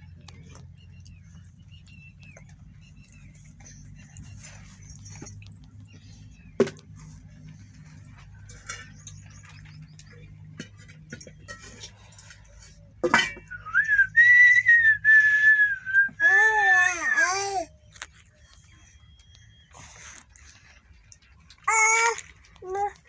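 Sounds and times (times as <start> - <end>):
person whistling a high note: 13.5 - 16.4
small child's voice: 16.2 - 17.8, 21.6 - 23.0.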